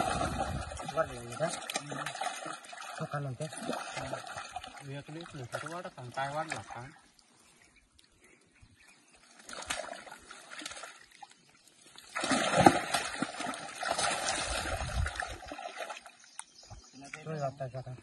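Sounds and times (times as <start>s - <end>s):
water splashing and sloshing: 0.0s - 8.3s, 9.1s - 17.2s.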